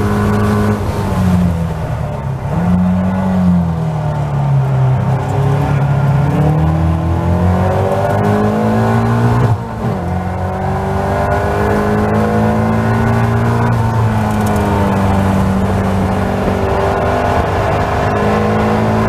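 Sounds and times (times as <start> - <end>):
race car engine accelerating: 0.0 - 19.0.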